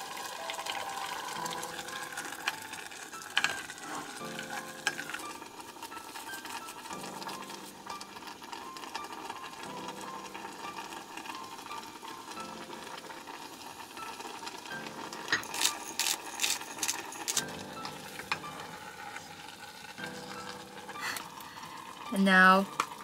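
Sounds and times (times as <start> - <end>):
pepper grinder crunching clicks: 15.3 - 17.5.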